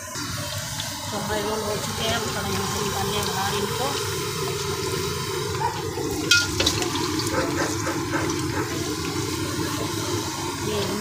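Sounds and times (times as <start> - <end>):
food sizzling in hot oil: 0.0 - 11.0
metal tongs clinking: 6.3 - 6.8.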